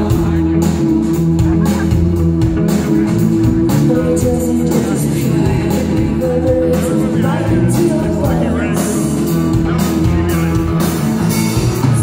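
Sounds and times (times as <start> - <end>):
bass guitar: 0.0 - 12.0
distorted electric guitars: 0.0 - 12.0
drums with cymbal crashes: 0.0 - 12.0
person singing: 3.5 - 12.0.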